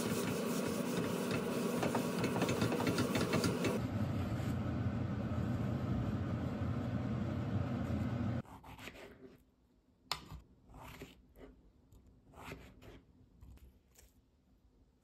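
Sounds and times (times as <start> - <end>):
gas burner rushing: 0.0 - 8.4.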